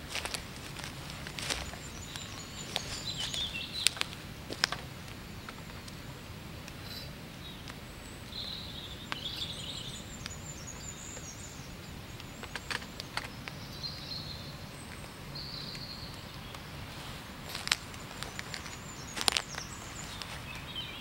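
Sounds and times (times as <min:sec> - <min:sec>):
low background noise: 0:00.0 - 0:21.0
small birds chirping: 0:00.0 - 0:21.0.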